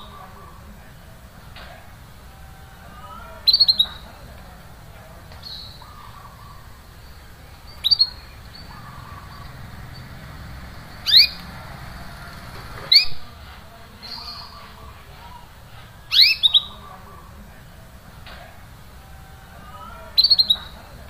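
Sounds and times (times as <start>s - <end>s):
canary chirping: 2.3s - 4.1s, 5.4s - 13.3s, 14.0s - 14.7s, 16.1s - 17.3s, 19.9s - 20.8s.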